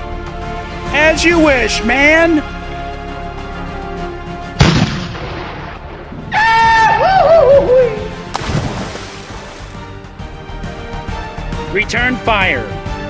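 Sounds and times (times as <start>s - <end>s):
background music: 0.0s - 13.0s
cannon shot boom: 4.6s - 6.3s
splash: 8.3s - 9.9s.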